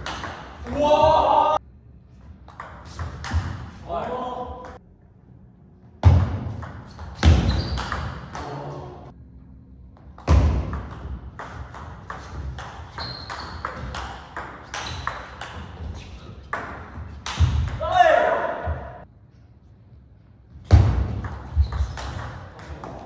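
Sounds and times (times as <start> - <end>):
short high squeaks: 12.9 - 13.8.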